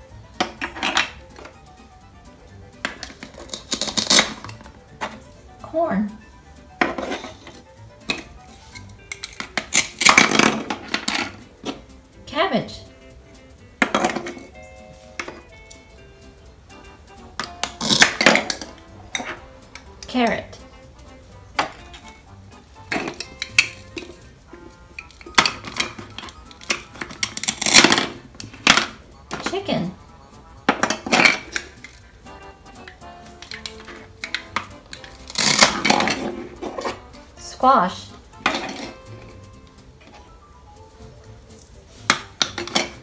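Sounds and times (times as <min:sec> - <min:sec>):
soft background music: 0:00.0 - 0:43.0
plastic toys clattering on board: 0:00.4 - 0:01.6, 0:06.8 - 0:11.8, 0:22.9 - 0:24.2, 0:25.0 - 0:29.6, 0:30.7 - 0:32.0, 0:33.4 - 0:37.0, 0:38.4 - 0:39.4, 0:42.1 - 0:43.0
velcro ripping: 0:03.3 - 0:04.5, 0:17.8 - 0:18.2, 0:35.1 - 0:36.0
plastic toys clattering on tabletop: 0:33.4 - 0:37.0, 0:42.1 - 0:43.0.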